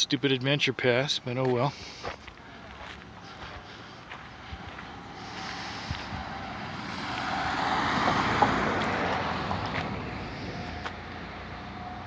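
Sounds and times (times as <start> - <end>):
car driving past: 4.3 - 12.0.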